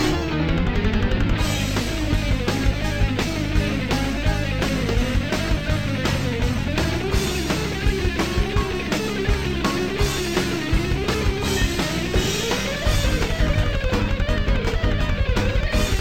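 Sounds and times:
bass: 0.0s - 16.0s
drum beat: 0.0s - 16.0s
wavering lead guitar: 0.0s - 16.0s.

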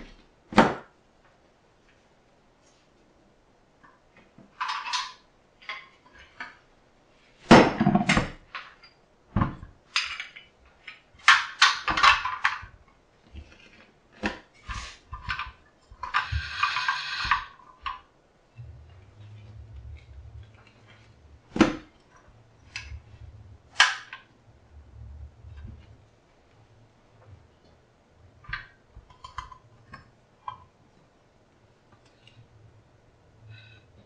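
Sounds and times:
metal scraping rattle: 14.6s - 18.0s.

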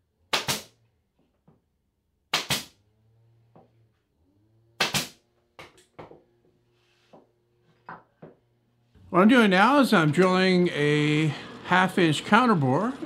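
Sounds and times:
pneumatic nailer firing: 0.3s - 0.8s, 2.3s - 2.8s, 4.8s - 5.2s.

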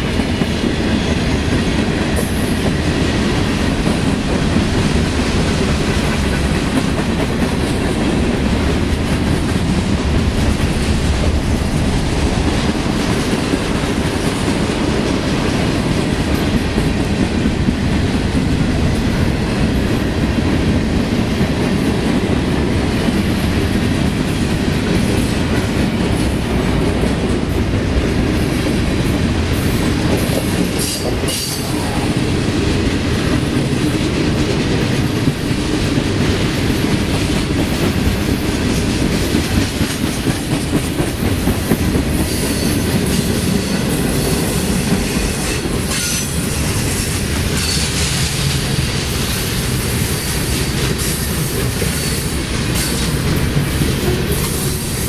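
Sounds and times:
freight train wheels rumbling: 0.0s - 55.0s
train wheel squeals: 42.2s - 48.4s.

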